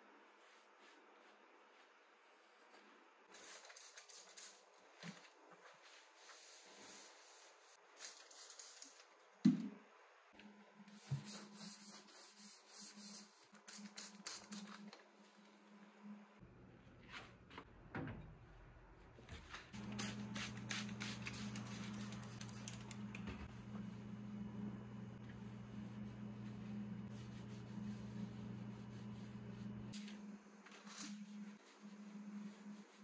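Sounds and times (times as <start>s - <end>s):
low steady hum: 15.6s - 30.6s.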